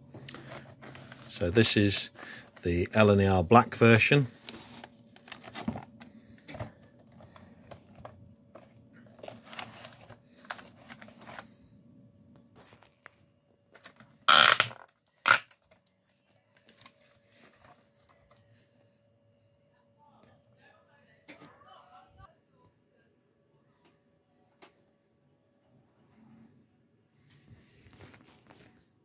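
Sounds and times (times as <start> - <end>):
plastic packaging rustling: 4.3 - 11.6
plastic packaging crinkling: 7.2 - 11.5.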